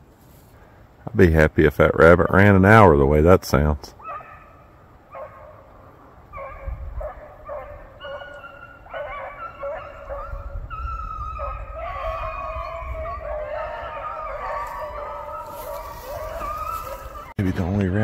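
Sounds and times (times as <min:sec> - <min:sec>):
hounds baying: 0:04.0 - 0:17.4.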